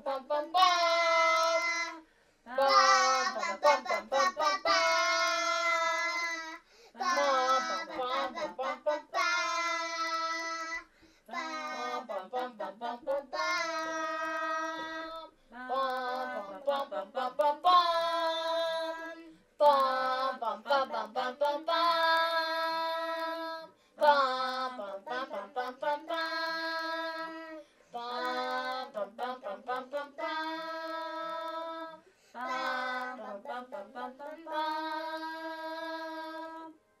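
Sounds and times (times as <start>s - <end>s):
child singing a wordless tune: 0.0s - 36.7s.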